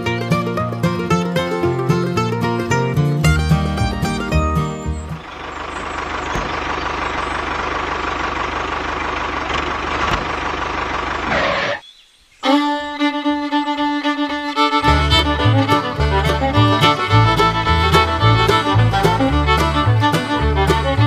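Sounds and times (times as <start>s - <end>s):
fiddle music: 0.0s - 7.0s, 12.4s - 21.0s.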